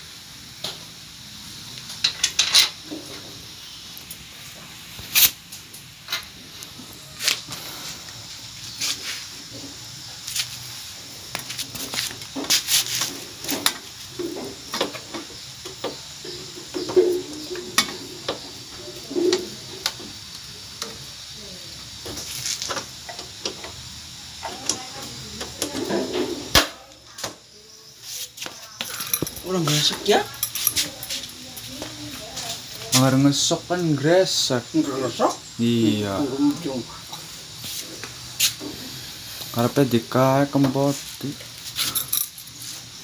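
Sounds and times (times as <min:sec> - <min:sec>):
low background hiss: 0:29.0 - 0:43.0
metallic tool clicks and clinks: 0:30.3 - 0:31.4.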